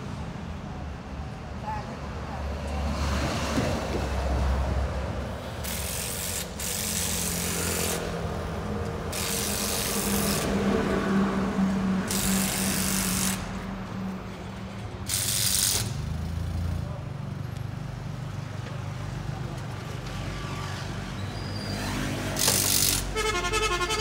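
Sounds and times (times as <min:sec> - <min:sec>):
sharp bursts of hiss: 0:05.6 - 0:08.2, 0:09.1 - 0:10.5, 0:12.1 - 0:13.5, 0:15.1 - 0:16.1
crane engine humming: 0:22.4 - 0:24.0.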